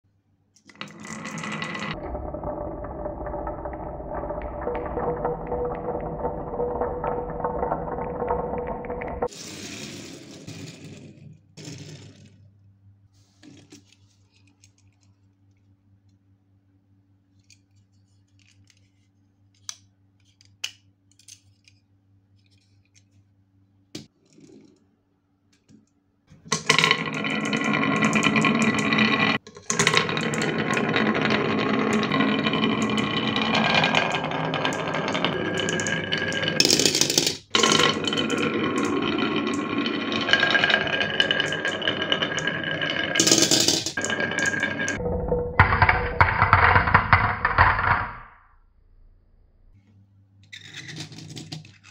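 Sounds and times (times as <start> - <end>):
marbles rolling down wooden track: 0.7 - 12.4, 26.5 - 48.4
low hum: 1.9 - 9.3, 44.0 - 49.8.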